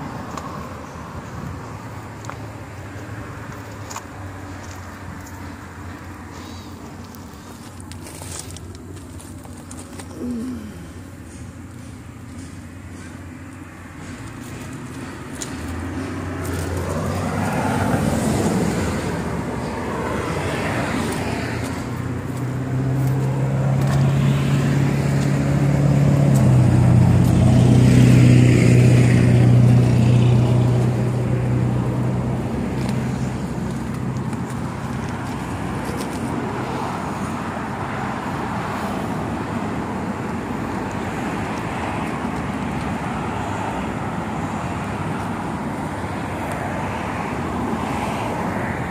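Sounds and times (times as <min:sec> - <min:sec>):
cars passing: 0:00.0 - 0:48.9
heavy engine drone: 0:04.9 - 0:41.5
traffic hiss: 0:05.3 - 0:22.0.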